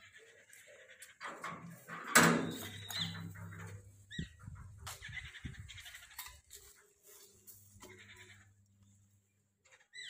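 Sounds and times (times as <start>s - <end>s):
metal gate opening: 1.1s - 3.8s
metallic clanks and knocks: 1.2s - 4.7s.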